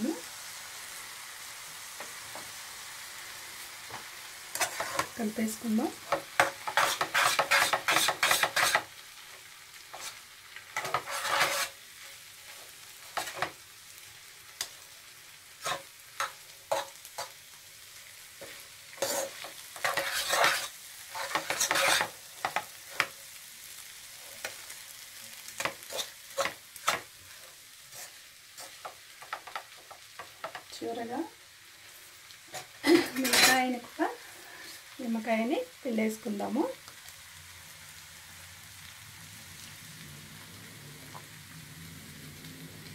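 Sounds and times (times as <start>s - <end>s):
faint sizzle: 0.0s - 42.9s
fork scraping and clicking on pan: 4.5s - 5.2s, 6.1s - 8.9s, 9.9s - 10.2s, 10.8s - 11.8s, 13.1s - 13.6s, 15.6s - 17.3s, 18.4s - 23.2s, 25.6s - 27.1s, 27.9s - 30.7s.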